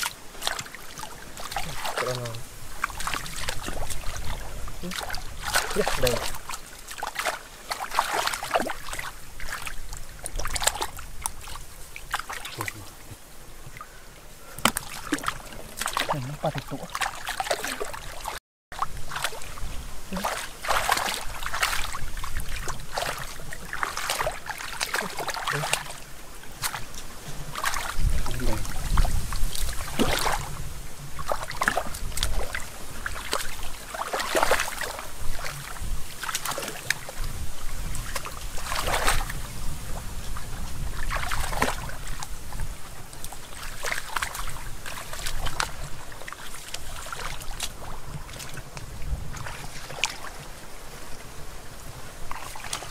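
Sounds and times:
hands splashing in water: 0:00.0 - 0:12.9, 0:14.5 - 0:30.6, 0:31.2 - 0:37.3, 0:37.9 - 0:39.4, 0:41.0 - 0:42.3, 0:43.2 - 0:48.6
wind rumbling on microphone: 0:00.0 - 0:52.9.

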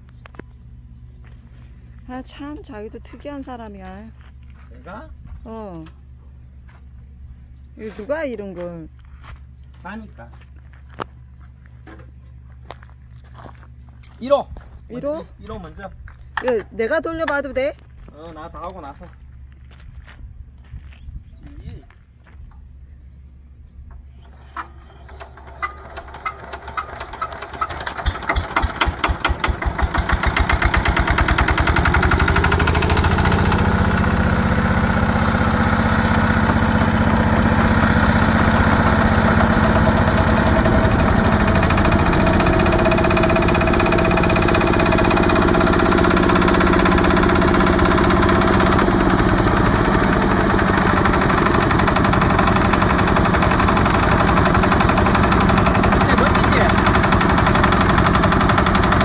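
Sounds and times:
diesel engine starting and chugging: 0:23.6 - 0:59.0.

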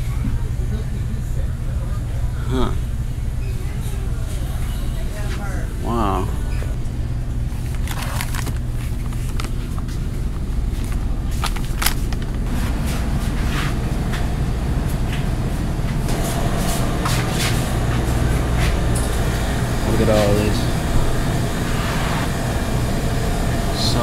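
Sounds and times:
cooling equipment hum: 0:00.0 - 0:24.0
plastic basket and goods clicking: 0:07.6 - 0:12.5.

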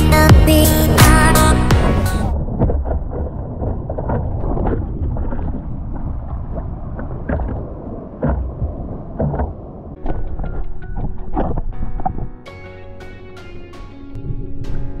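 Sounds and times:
wind rumbling on microphone: 0:00.7 - 0:12.4, 0:14.1 - 0:15.0
ocean water sloshing: 0:00.8 - 0:12.4
water splashes: 0:00.9 - 0:12.4.

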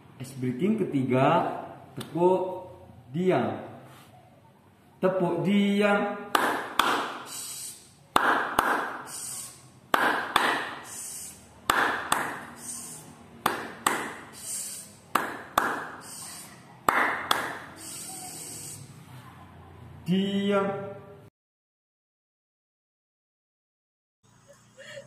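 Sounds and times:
hand clapping: 0:06.3 - 0:07.3, 0:08.1 - 0:09.1, 0:09.9 - 0:10.9, 0:11.7 - 0:12.6, 0:13.4 - 0:14.3, 0:15.1 - 0:16.0, 0:16.9 - 0:17.7.

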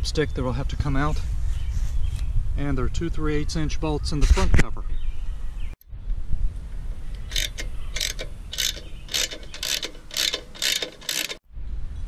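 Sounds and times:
ratchet wrench clicking: 0:07.2 - 0:11.4.

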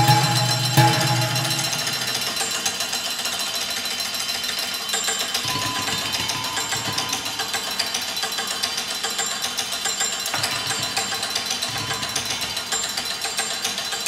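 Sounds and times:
steel bowls struck with sticks: 0:00.0 - 0:03.2
ringing metallic tones: 0:00.0 - 0:14.0.

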